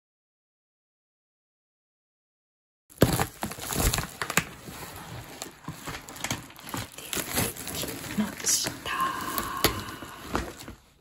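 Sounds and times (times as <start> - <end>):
foil mailer crinkling: 2.9 - 11.0.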